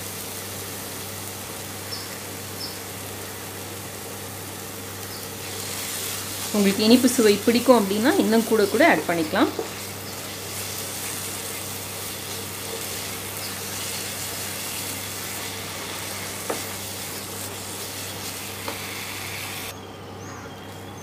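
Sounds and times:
food sizzling in a pan: 0:00.0 - 0:19.7
spatula scraping a pan: 0:08.9 - 0:19.7.

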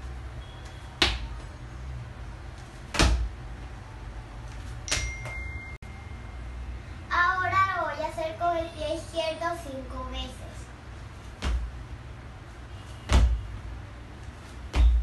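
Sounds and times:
light footfalls: 0:00.6 - 0:01.6, 0:02.5 - 0:03.4, 0:11.0 - 0:11.8, 0:12.5 - 0:15.0
trainers landing on tiled floor: 0:02.9 - 0:03.3, 0:11.4 - 0:11.7, 0:13.1 - 0:13.5, 0:14.7 - 0:15.0.

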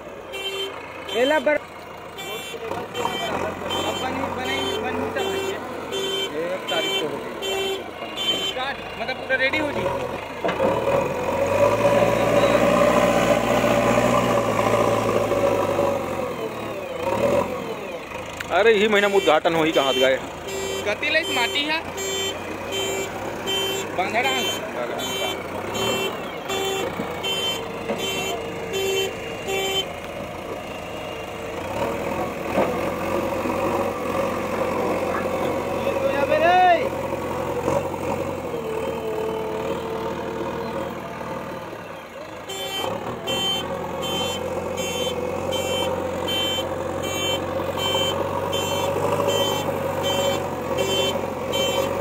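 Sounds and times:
diesel engine running: 0:00.0 - 0:52.0.

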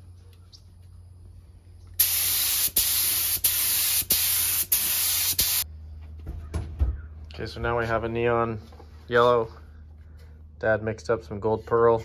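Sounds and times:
air spray gun hissing: 0:02.0 - 0:05.6.

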